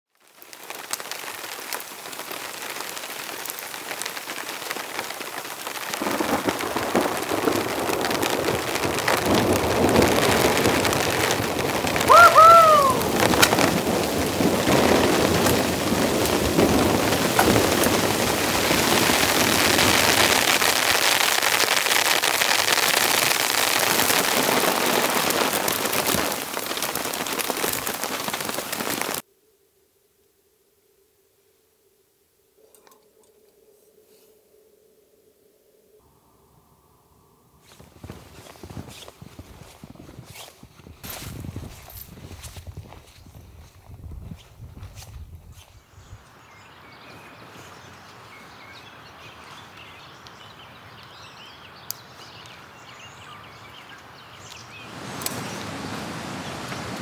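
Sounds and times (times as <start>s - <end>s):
heavy rain falling: 0.1s - 29.2s, 46.6s - 57.0s.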